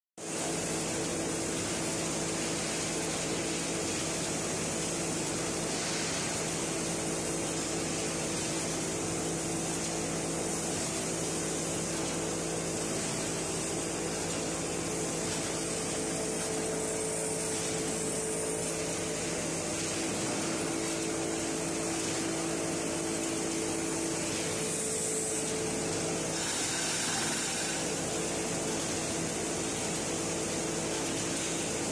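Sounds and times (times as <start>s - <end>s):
industrial machinery humming: 0.4s - 31.9s.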